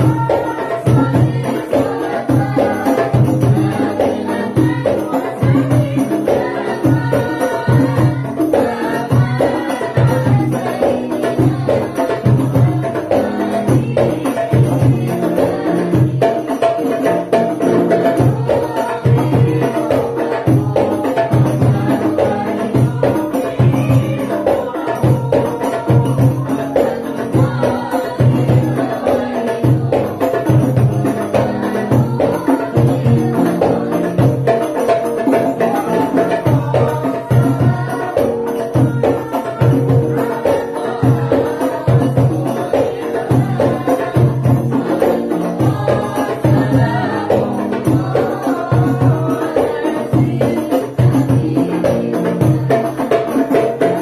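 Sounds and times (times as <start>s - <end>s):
frame drums and hand drums: 0.0s - 54.0s
group of voices singing: 0.0s - 54.0s.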